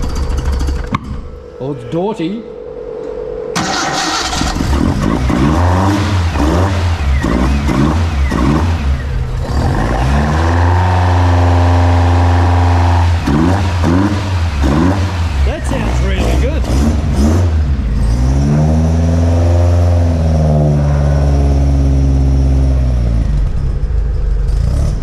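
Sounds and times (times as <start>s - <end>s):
car engine revving: 3.6s - 25.0s.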